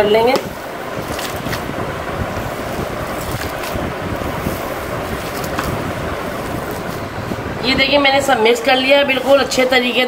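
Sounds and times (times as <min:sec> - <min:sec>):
rushing wind-like noise: 0:00.0 - 0:10.0
hand squelching minced meat: 0:01.0 - 0:07.4.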